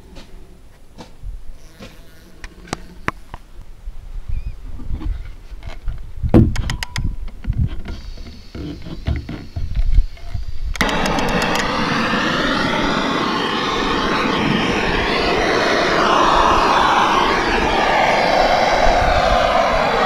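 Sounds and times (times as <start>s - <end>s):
blowtorch igniter clicks: 10.7s - 11.8s
blowtorch hissing: 10.8s - 20.0s.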